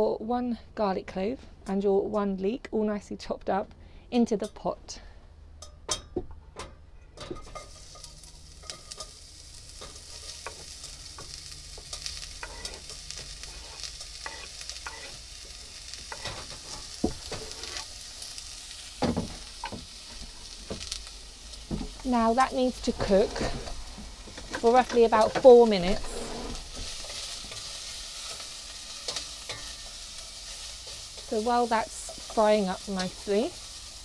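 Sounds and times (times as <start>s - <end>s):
vegetables sizzling in hot oil: 7.4s - 34.0s.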